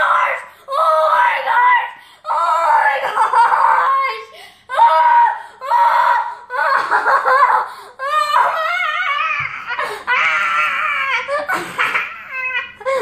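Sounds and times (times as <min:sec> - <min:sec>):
boy squealing and wailing: 0:08.0 - 0:13.0.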